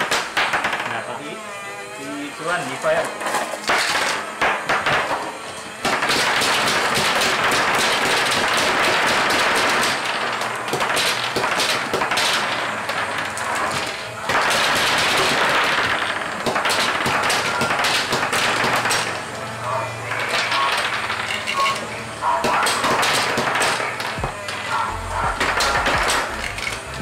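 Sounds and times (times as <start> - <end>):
toy shooters firing plastic marbles: 0.0 - 1.2, 3.1 - 19.4, 20.0 - 27.0
marbles bouncing on wooden table: 20.2 - 21.8.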